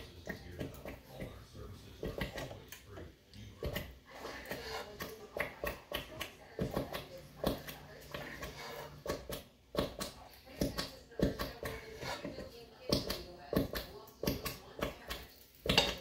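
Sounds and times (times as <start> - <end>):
spoons clinking in metal pot: 15.2 - 16.0.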